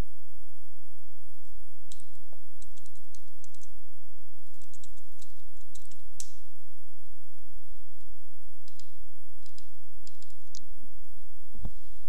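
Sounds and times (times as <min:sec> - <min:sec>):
steady low hum: 0:00.0 - 0:12.0
keyboard keys clicking: 0:01.9 - 0:03.7, 0:04.5 - 0:06.4, 0:08.6 - 0:10.6.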